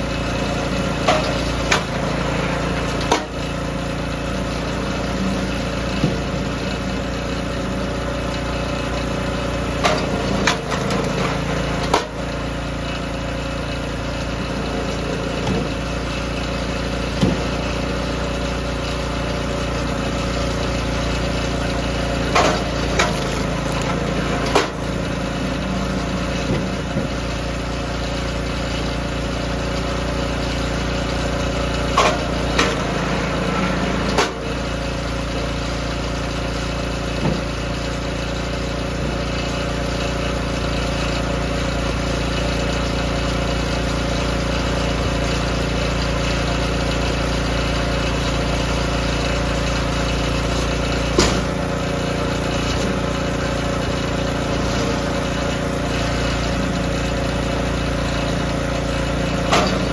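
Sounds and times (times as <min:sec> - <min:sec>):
small gas engine running: 0:00.0 - 0:59.9
wood cracking under splitter ram: 0:09.7 - 0:12.3, 0:21.2 - 0:27.5.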